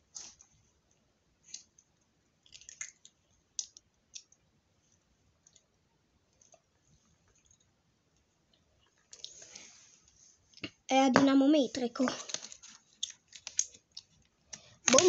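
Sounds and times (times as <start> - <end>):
small hard objects clicking: 12.1 - 15.0.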